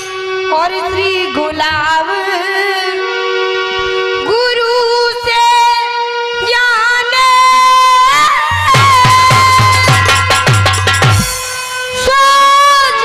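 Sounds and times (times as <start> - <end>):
harmonium: 0.0 - 13.0
girl singing devotional song: 4.2 - 10.2, 11.9 - 13.0.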